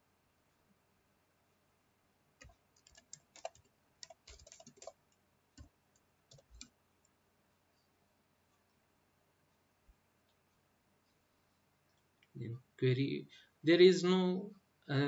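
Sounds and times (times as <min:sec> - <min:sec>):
keyboard keystroke clicks: 0:02.4 - 0:05.0.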